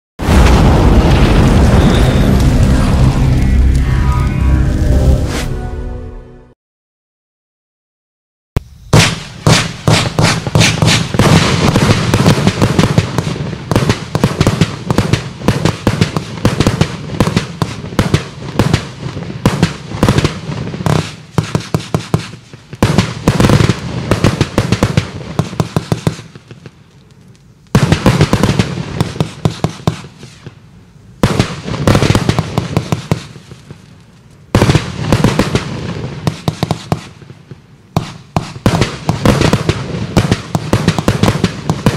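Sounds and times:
fireworks crackling bursts: 0.2 - 5.0, 8.6 - 41.9
fireworks launch thumps: 8.9 - 13.1.

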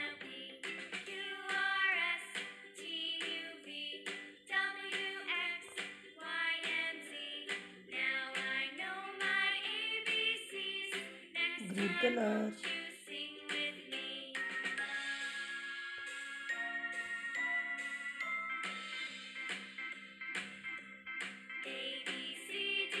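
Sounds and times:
song sung in high voice: 11.6 - 12.8.

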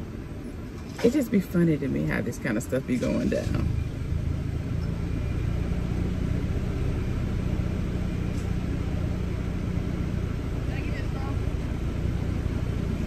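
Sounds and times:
car engine running: 0.0 - 13.0.

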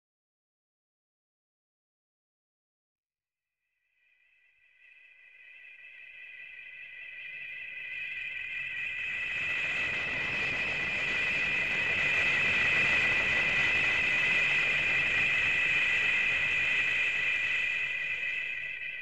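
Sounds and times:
jet-like whistling whine: 4.7 - 19.0.

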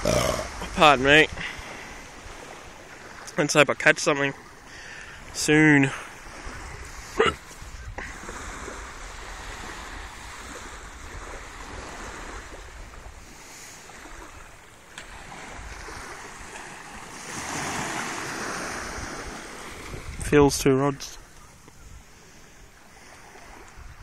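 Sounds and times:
small waves washing on beach: 0.0 - 24.0
wind rumbling on microphone: 6.0 - 24.0.

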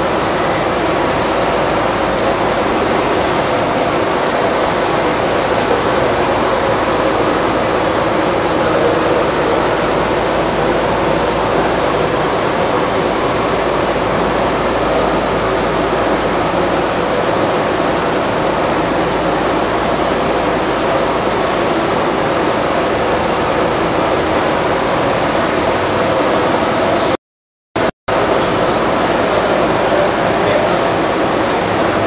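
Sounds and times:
factory machinery rushing: 0.0 - 27.2, 28.1 - 32.0.

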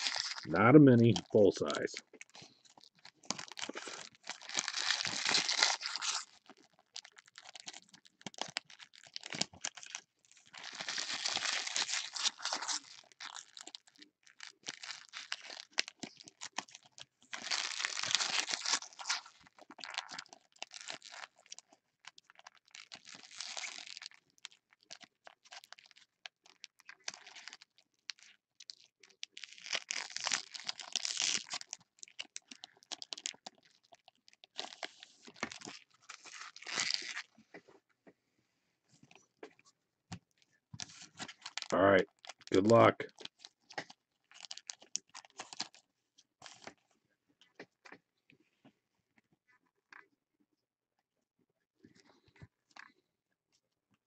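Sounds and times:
foil wrappers crinkling and tearing: 0.0 - 37.4, 40.8 - 45.8, 46.4 - 46.8.

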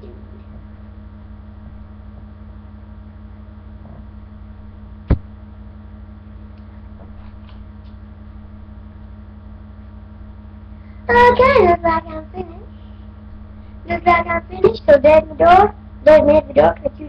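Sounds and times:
low electrical hum: 0.0 - 17.0
sharp knock: 5.1 - 5.3.

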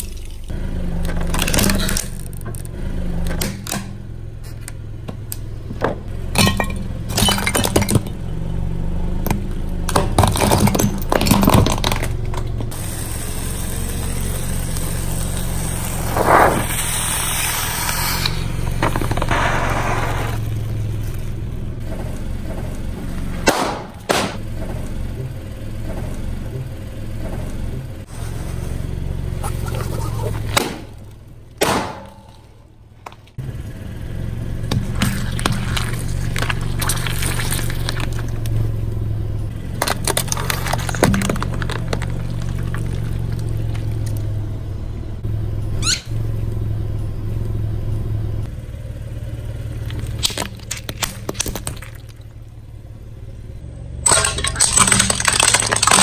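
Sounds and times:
car engine hum: 0.0 - 56.0
tyre crushing plastic toys: 39.8 - 44.2, 49.8 - 52.2, 54.1 - 56.0.

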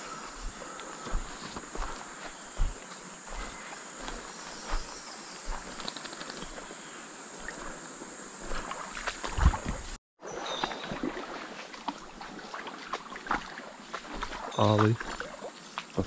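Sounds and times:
insects droning: 0.0 - 10.0, 10.9 - 16.0
footstep thumps: 0.4 - 5.8, 8.4 - 10.0.

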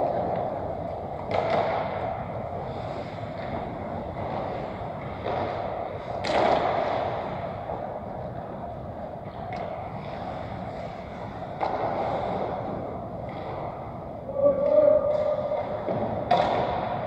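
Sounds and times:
echoing hall din: 14.2 - 17.0.

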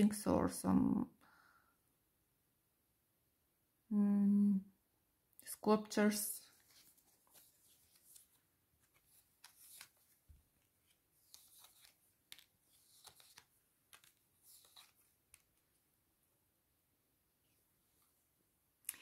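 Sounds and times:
cards rustling and ticking: 6.6 - 15.8.

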